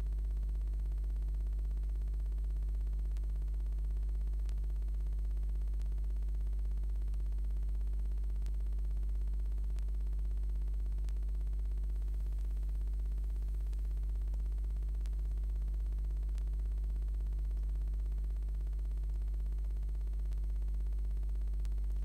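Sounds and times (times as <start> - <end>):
low electrical hum: 0.0 - 22.0
faint sharp ticks: 4.4 - 4.7, 9.7 - 20.7, 21.5 - 22.0.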